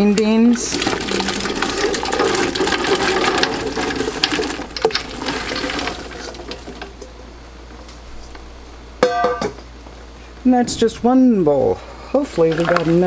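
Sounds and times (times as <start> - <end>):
beans splashing into liquid: 0.5 - 7.0, 12.4 - 13.0.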